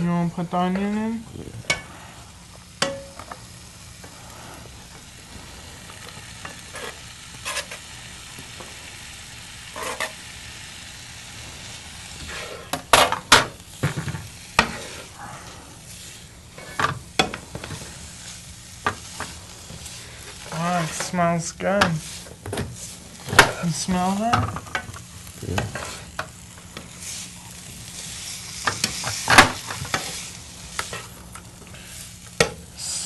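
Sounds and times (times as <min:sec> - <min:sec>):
meat sizzling in a frying pan: 0:00.1 - 0:33.0
spatula knocking and scraping pan: 0:06.4 - 0:07.9, 0:09.8 - 0:10.2, 0:12.2 - 0:15.0, 0:16.6 - 0:18.0, 0:20.4 - 0:21.2.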